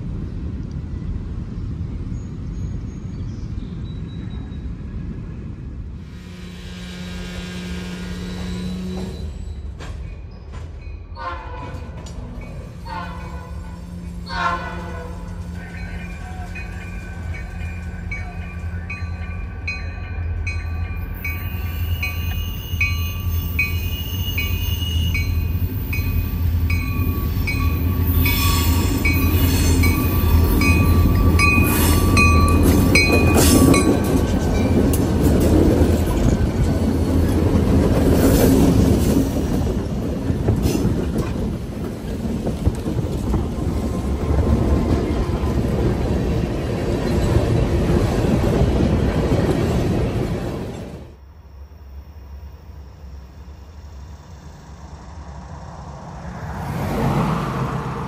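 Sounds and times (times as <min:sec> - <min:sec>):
diesel locomotives rumbling: 0:00.0 - 0:58.0
locomotive horn: 0:06.0 - 0:09.4, 0:11.2 - 0:12.0, 0:12.7 - 0:20.1.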